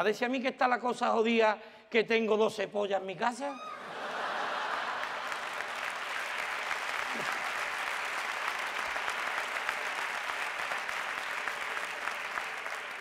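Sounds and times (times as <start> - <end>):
audience applauding: 3.8 - 13.0.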